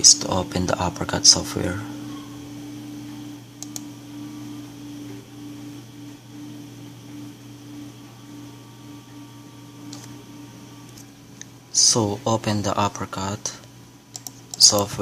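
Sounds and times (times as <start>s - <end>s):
faint pulsing tone: 0.0s - 11.0s
low electrical hum: 0.0s - 15.0s
mouse clicks: 3.6s - 3.9s, 14.1s - 14.9s.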